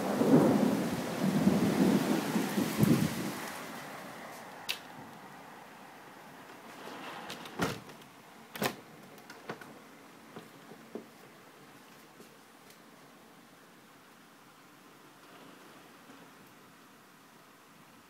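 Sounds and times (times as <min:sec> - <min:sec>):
thunder rumbling: 0:00.0 - 0:04.3
rain hissing: 0:00.0 - 0:07.5.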